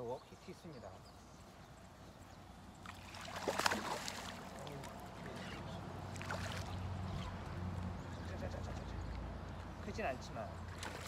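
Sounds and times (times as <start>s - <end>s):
fish splashing at surface: 2.9s - 4.9s.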